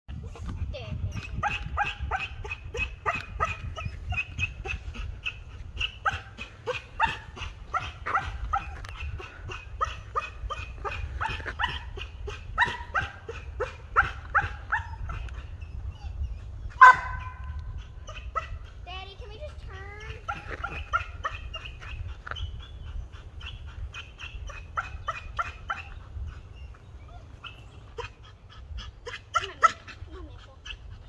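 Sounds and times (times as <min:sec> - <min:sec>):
dog barking: 0:01.2 - 0:15.4, 0:16.8 - 0:18.7, 0:20.0 - 0:22.0, 0:23.5 - 0:26.0, 0:29.0 - 0:30.0.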